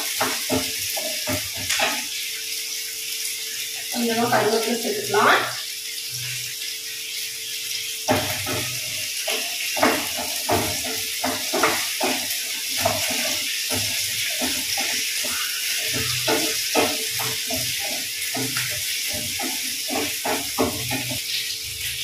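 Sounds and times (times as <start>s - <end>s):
spatula scraping a pan: 0.0s - 2.2s, 8.1s - 21.2s
shallots sizzling in oil: 0.0s - 22.0s.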